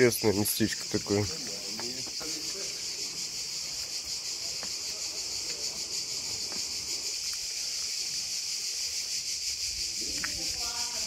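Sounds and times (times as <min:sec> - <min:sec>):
cicadas shrilling: 0:00.0 - 0:11.0
faint footsteps on stone: 0:00.6 - 0:09.2.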